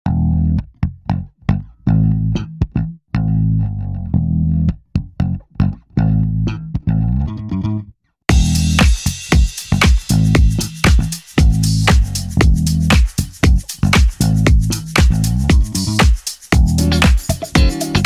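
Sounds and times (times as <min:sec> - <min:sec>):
plucked bass guitar line: 0:00.0 - 0:18.0
crisp percussive hits: 0:08.3 - 0:18.0.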